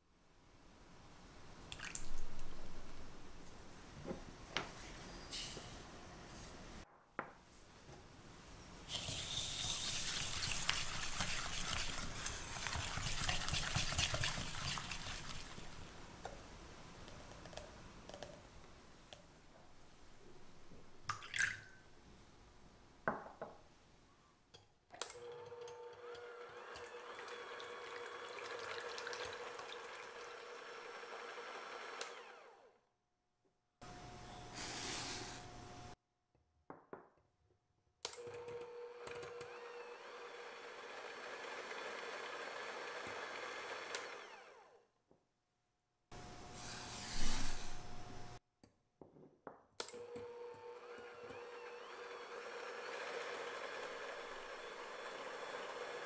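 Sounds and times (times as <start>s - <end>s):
whisking in glass bowl: 8.9s - 15.8s
electric hand mixer humming: 9.7s - 15.9s, 25.2s - 32.7s, 39.1s - 44.7s, 50.2s - 56.0s.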